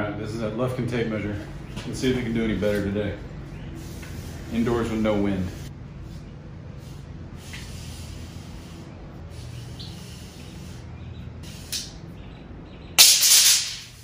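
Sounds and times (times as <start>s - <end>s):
metal tape blade clattering: 13.0s - 14.0s.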